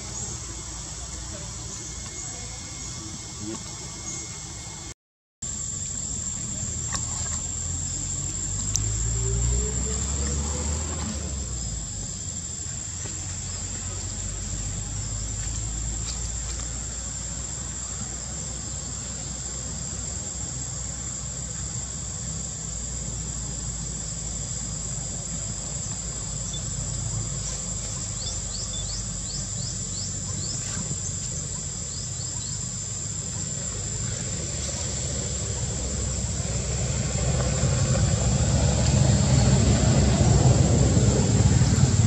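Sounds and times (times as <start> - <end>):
insects droning: 0.0 - 42.0
low background rumble: 11.1 - 42.0.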